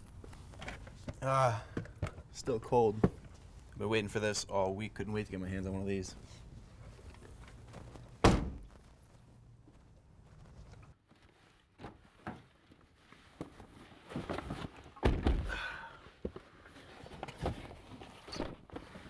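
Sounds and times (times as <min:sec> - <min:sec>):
handling and rustling: 0:00.0 - 0:01.2, 0:06.1 - 0:15.4, 0:16.0 - 0:19.0
heavy car door thud: 0:08.2 - 0:08.6.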